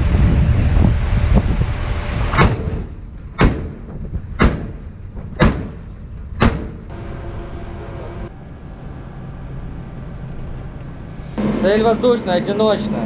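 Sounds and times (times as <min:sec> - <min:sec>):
wind and ship rushing: 0:00.0 - 0:08.3
deck gun firing: 0:05.4 - 0:05.8, 0:06.4 - 0:06.8.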